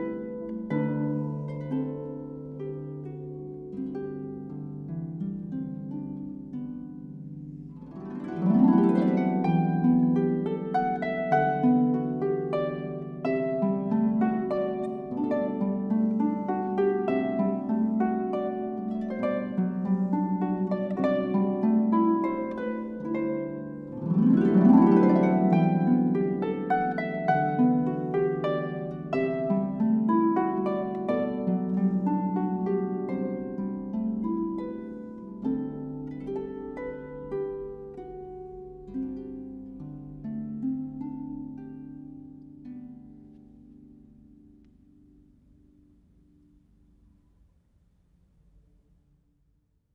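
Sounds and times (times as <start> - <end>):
harp plucked notes and chords: 7.8 - 45.0.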